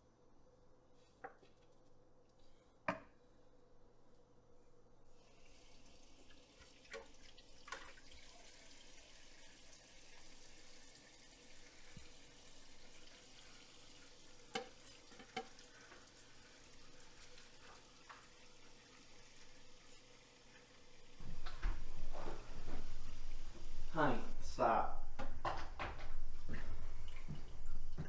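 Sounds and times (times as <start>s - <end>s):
tap running into sink: 14.5s - 15.6s.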